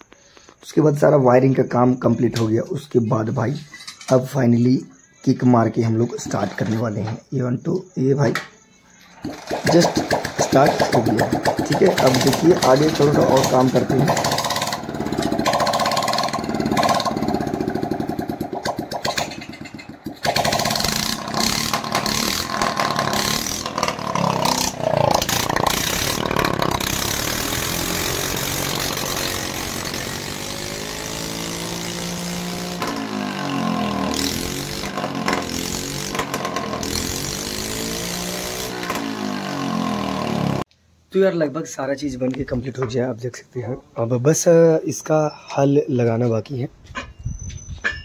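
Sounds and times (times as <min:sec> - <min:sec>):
scooter engine revving: 0:09.2 - 0:40.7.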